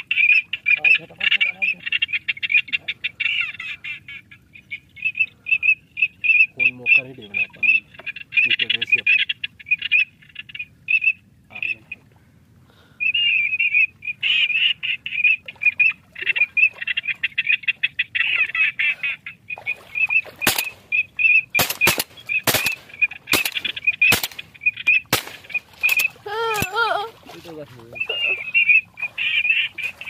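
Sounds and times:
sharp cracks: 0:20.4 - 0:21.0, 0:21.6 - 0:24.5, 0:25.1 - 0:26.8.

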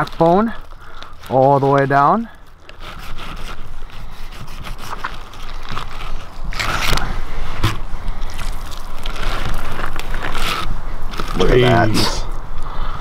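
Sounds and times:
knife scraping along fish bones: 0:02.7 - 0:06.8.

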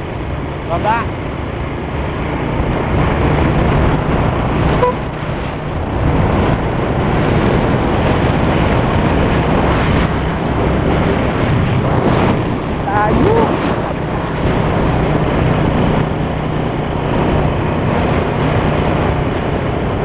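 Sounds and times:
motorcycle engine running: 0:00.0 - 0:20.0
wind rushing over microphone: 0:00.0 - 0:20.0
short beep: 0:04.8 - 0:05.1.

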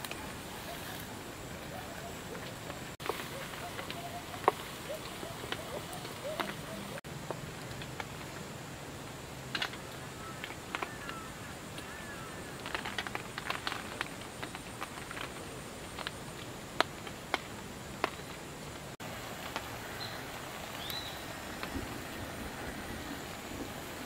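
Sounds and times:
faint chirps: 0:19.9 - 0:21.4.

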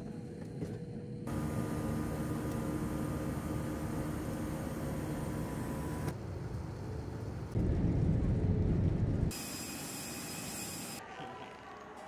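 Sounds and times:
steady vehicle noise: 0:01.2 - 0:09.4.

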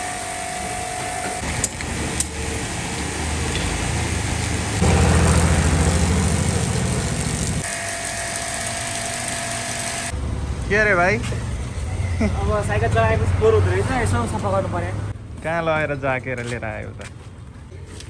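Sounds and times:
motor running: 0:03.5 - 0:10.1.

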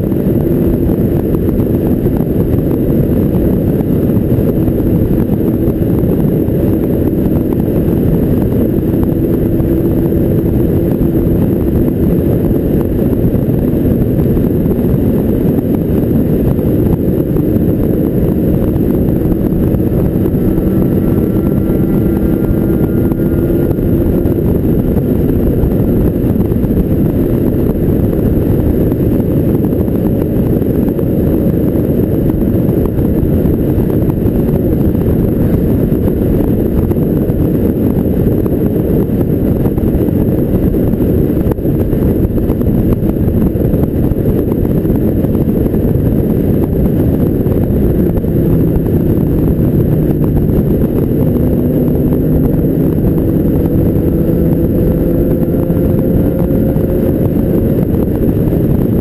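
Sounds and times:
motorcycle engine running: 0:00.0 - 0:59.0
wind rush on microphone: 0:00.0 - 0:59.0.

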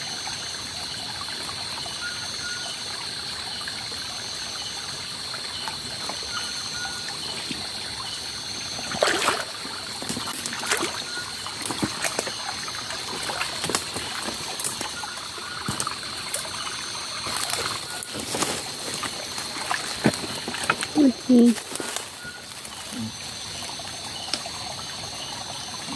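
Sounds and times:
stream trickling over stones: 0:00.0 - 0:25.9
splashes from wading: 0:08.7 - 0:23.0.

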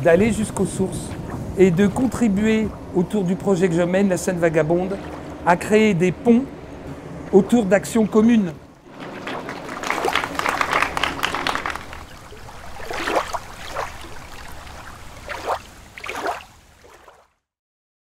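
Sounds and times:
small audience applause: 0:09.3 - 0:12.2.

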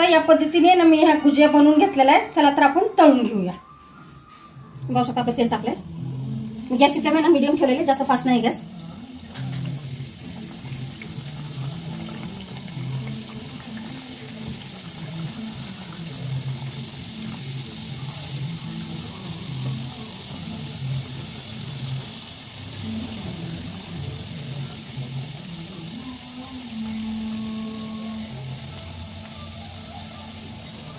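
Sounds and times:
pastries sizzling in hot oil: 0:04.9 - 0:30.9.

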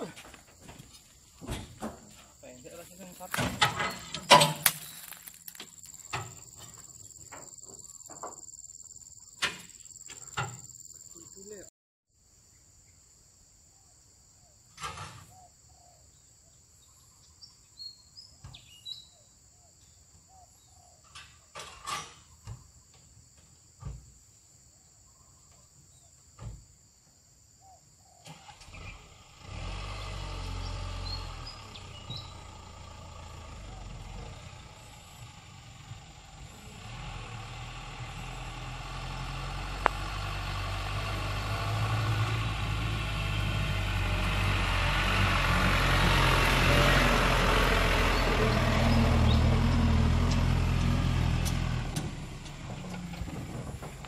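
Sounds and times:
bird chirps: 0:15.3 - 0:21.1, 0:31.0 - 0:32.4
diesel truck engine: 0:28.3 - 0:54.0.

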